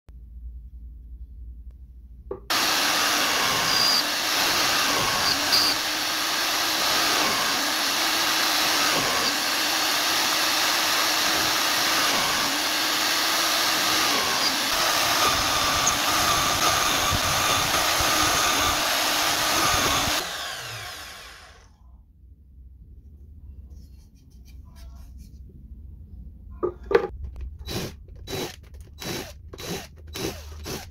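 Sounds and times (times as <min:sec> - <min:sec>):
electric drill boring wood: 0:02.5 - 0:21.7, 0:27.6 - 0:30.9.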